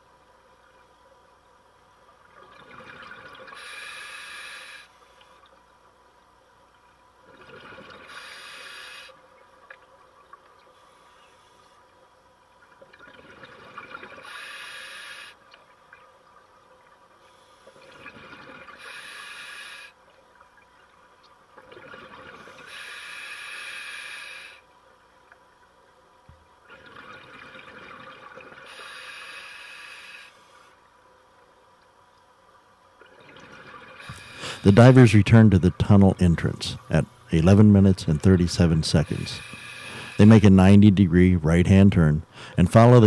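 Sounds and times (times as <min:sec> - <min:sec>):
regulator inhale hiss: 0:03.6 - 0:05.4, 0:08.1 - 0:09.2, 0:10.8 - 0:11.8, 0:14.2 - 0:15.4, 0:18.8 - 0:20.0, 0:22.4 - 0:24.6, 0:28.6 - 0:30.8, 0:34.0 - 0:34.7, 0:39.3 - 0:40.2, 0:42.3 - 0:42.6.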